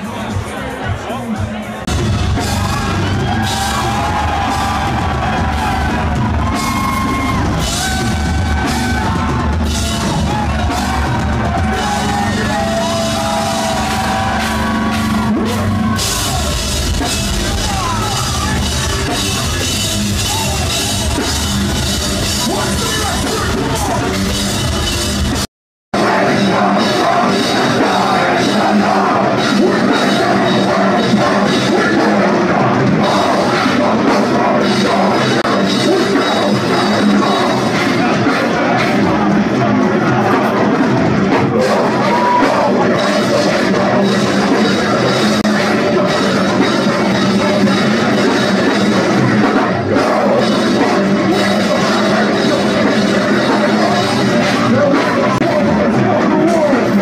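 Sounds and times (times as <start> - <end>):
metal band playing live: 0.0 - 57.0
screamed vocals: 2.4 - 18.9, 41.4 - 46.6.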